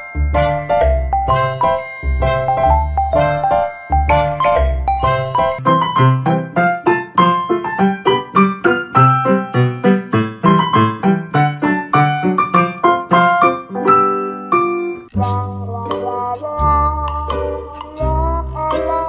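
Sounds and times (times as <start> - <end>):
piano music with bass line: 0.0 - 19.0.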